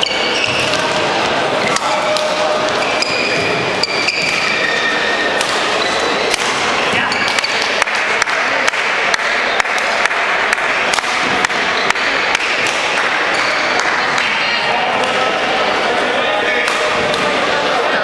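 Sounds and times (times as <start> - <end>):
shoe squeaks on court: 0.0 - 0.9, 2.7 - 6.3
racket hitting shuttlecock: 0.1 - 3.1, 3.8 - 14.4, 16.6 - 17.4.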